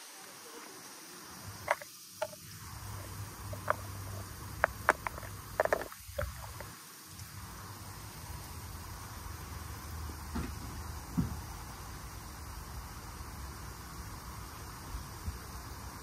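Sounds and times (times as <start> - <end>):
steady hiss: 0.0 - 16.0
sharp clicks and taps: 3.4 - 6.7.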